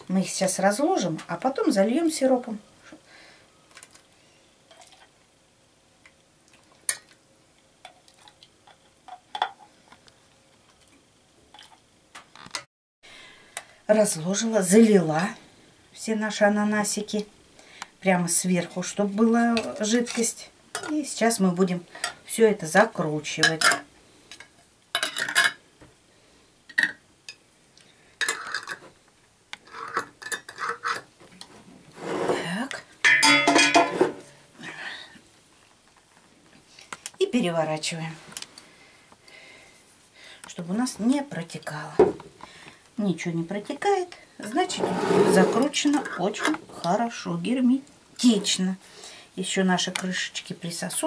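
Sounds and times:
metal lids scraping on glass jars: 33.2s - 34.3s, 44.7s - 46.6s.

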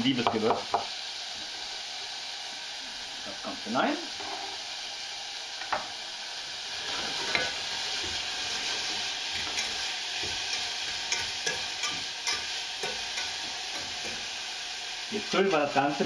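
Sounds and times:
vegetables sizzling in oil: 0.0s - 16.0s
metal utensil clicking on pot: 10.5s - 14.2s.

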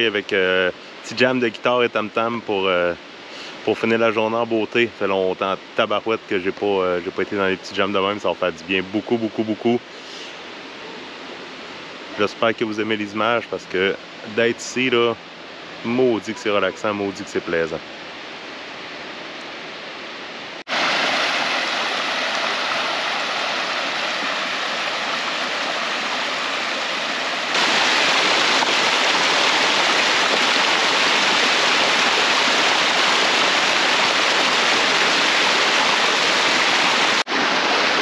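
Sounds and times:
waterfall rushing: 20.6s - 38.0s.

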